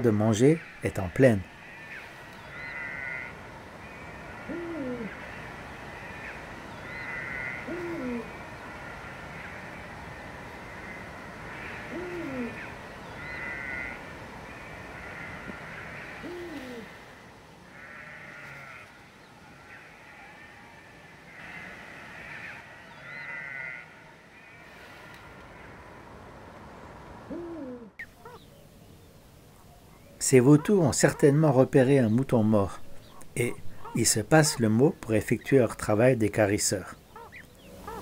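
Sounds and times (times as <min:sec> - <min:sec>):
higher quavering call: 0:00.5 - 0:09.9, 0:10.6 - 0:17.1, 0:27.2 - 0:28.5, 0:37.1 - 0:38.0
owl deep hoots: 0:01.7 - 0:05.4, 0:06.0 - 0:09.6, 0:10.8 - 0:14.0, 0:15.0 - 0:17.0, 0:27.2 - 0:28.4, 0:33.0 - 0:34.6, 0:37.2 - 0:38.0.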